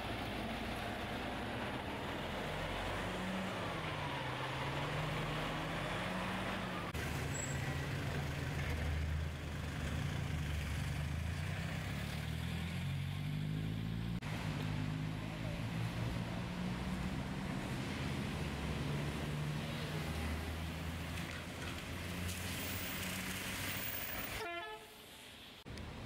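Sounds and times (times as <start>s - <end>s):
truck and van engines droning: 0.0s - 24.4s.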